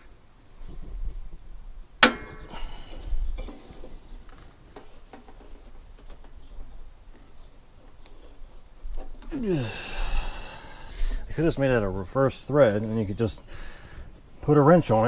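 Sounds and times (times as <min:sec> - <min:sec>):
metal tool clanking on metal: 0:02.0 - 0:02.8.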